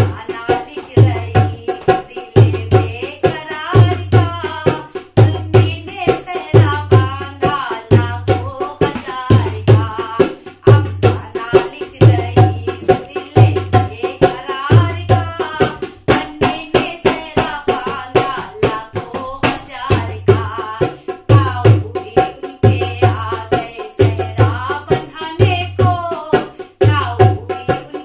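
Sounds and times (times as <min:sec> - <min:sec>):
dholak drum rhythm: 0:00.0 - 0:28.0
woman singing: 0:00.0 - 0:28.0.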